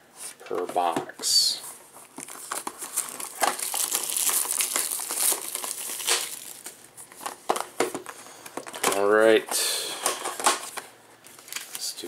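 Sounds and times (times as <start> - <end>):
plastic wrap crinkling: 1.6 - 9.1.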